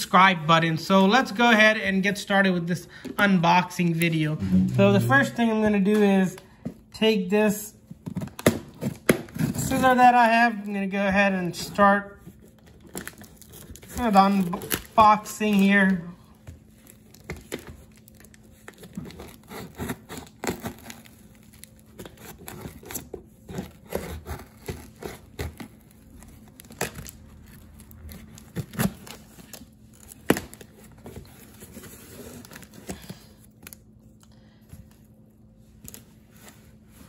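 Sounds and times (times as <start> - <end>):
tape tearing: 16.9 - 33.8
scissors cutting packing tape: 18.7 - 30.6.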